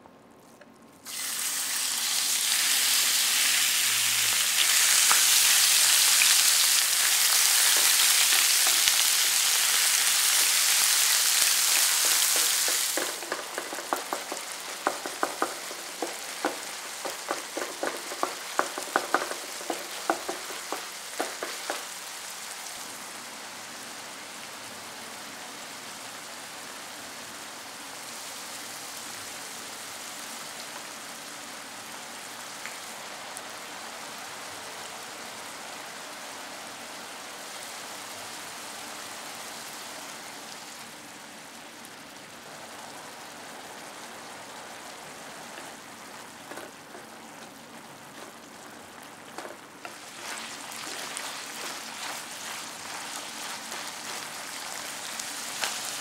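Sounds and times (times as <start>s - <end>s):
meat sizzling in a frying pan: 1.0s - 56.0s
wooden spatula tapping a pan: 6.5s - 10.6s, 11.5s - 21.9s, 45.6s - 55.9s.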